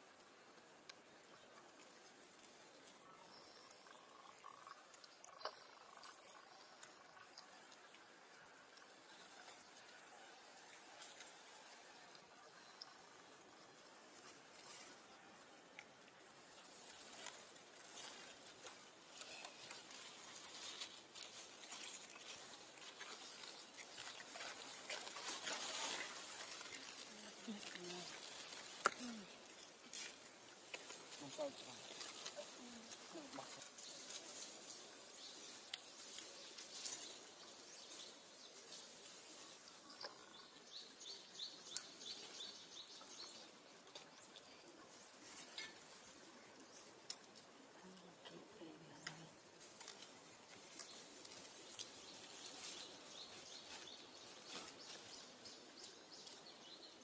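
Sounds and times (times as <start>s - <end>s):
faint outdoor ambience: 0.0s - 57.0s
small bird chirping: 3.0s - 7.6s, 39.4s - 44.7s
soft clicks and rustles: 49.0s - 56.5s.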